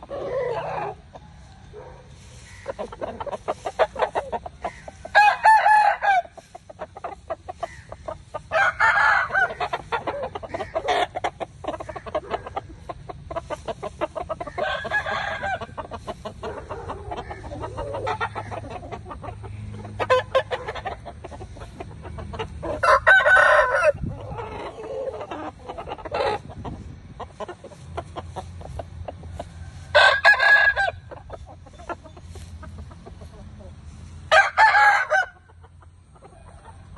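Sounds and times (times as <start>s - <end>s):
chickens clucking: 0.0s - 36.9s
roosters crowing: 0.0s - 36.9s.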